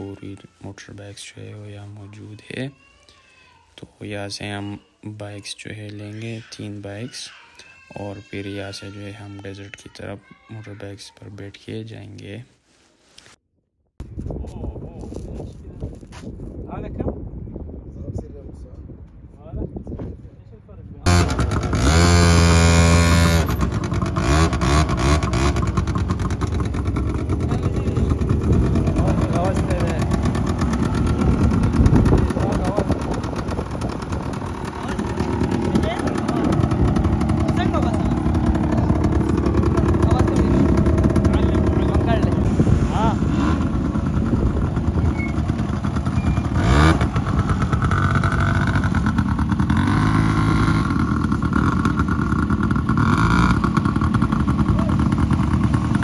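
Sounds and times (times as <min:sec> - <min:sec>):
engine throttle blips: 0:21.1 - 0:56.0
quad bike engines idling: 0:21.1 - 0:56.0.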